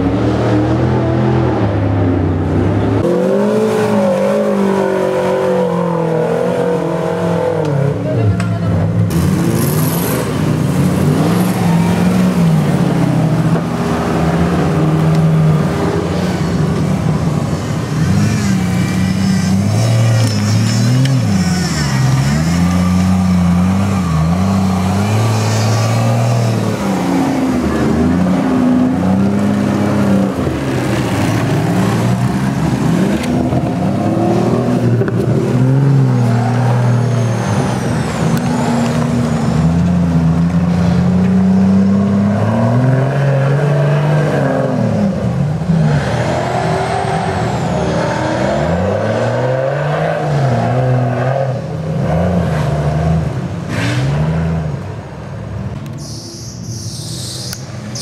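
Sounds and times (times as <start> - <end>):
off-road engines revving: 0.0 - 58.0.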